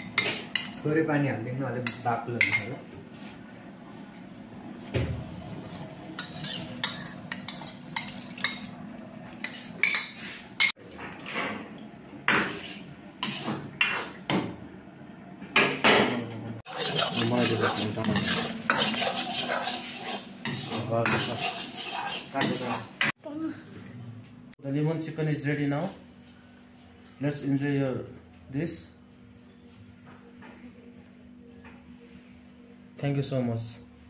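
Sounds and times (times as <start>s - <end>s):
metal ladle scraping a wok: 6.2s - 8.7s, 16.7s - 23.1s.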